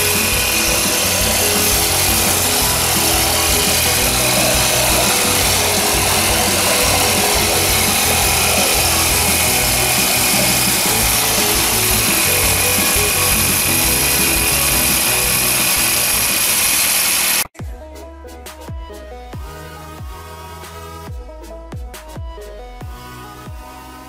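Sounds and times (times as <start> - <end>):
petrol engine running at high speed: 0.0 - 17.5
water gushing from pipe: 0.0 - 17.5.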